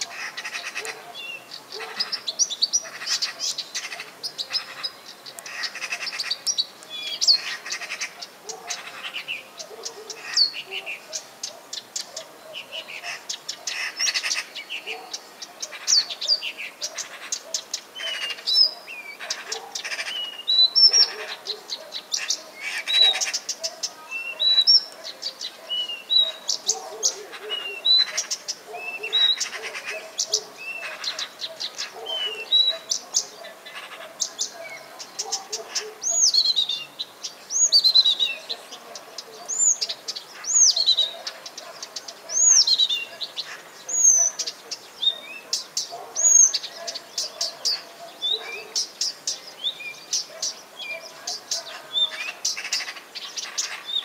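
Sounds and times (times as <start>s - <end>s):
nightingale singing: 0.0s - 54.0s.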